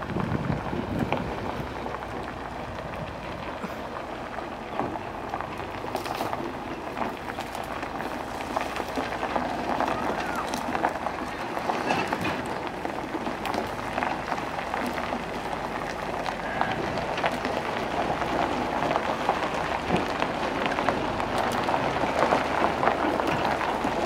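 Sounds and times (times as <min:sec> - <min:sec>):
gravel crunching: 0:00.0 - 0:24.0.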